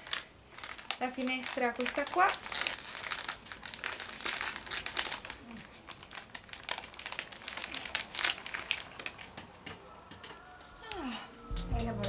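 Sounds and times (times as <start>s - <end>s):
wrapper crinkling and tearing: 0.0s - 9.5s.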